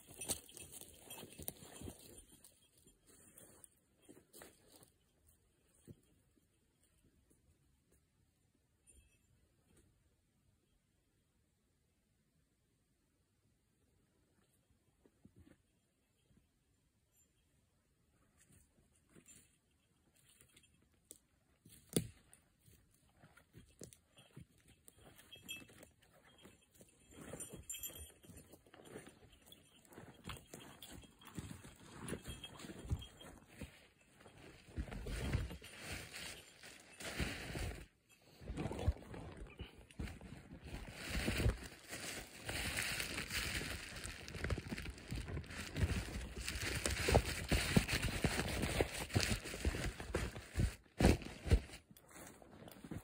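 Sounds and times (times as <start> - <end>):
footsteps crunching on twigs: 29.8 - 37.8, 38.7 - 53.0.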